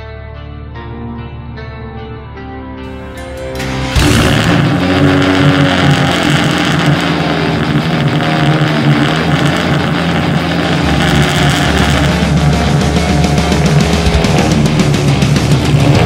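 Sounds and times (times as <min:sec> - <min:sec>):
deep low throb: 0:03.6 - 0:16.0
race car engine idling: 0:03.6 - 0:16.0.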